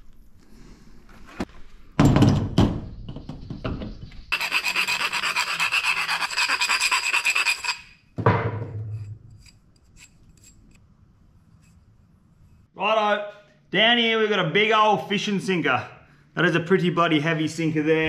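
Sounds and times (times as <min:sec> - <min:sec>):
hand tool rasping on metal tube: 0:04.3 - 0:07.9, 0:09.3 - 0:10.8.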